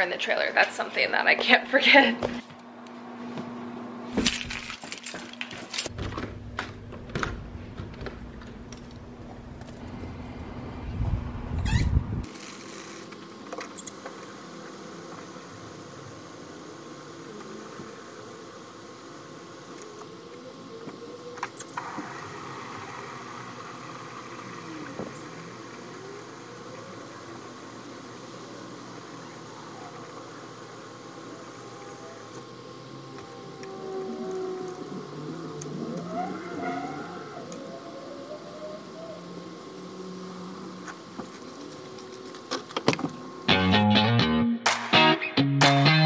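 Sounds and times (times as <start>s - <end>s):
steady low rumble: 5.9s - 12.3s
hose water running into jug: 21.5s - 32.4s.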